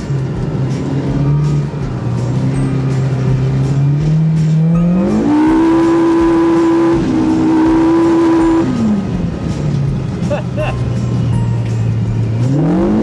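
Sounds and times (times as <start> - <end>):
engine revving hard: 2.3 - 9.1, 12.4 - 13.0.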